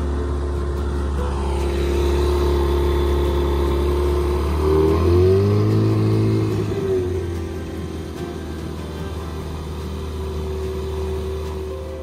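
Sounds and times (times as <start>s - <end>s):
outboard motor droning: 0.0s - 12.0s.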